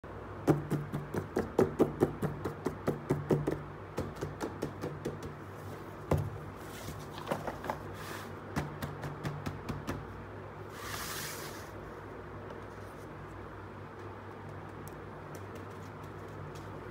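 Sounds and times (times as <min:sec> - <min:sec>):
fingers tapping on cardboard: 0:00.4 - 0:05.4, 0:08.6 - 0:10.1
soft rustle: 0:06.6 - 0:08.4, 0:10.7 - 0:13.4.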